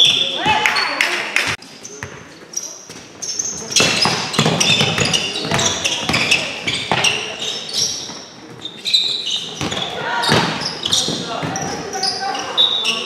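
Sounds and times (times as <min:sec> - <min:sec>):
shoes squeaking on court: 0:01.6 - 0:13.0
balls bouncing on gym floor: 0:02.9 - 0:07.4, 0:09.4 - 0:12.0.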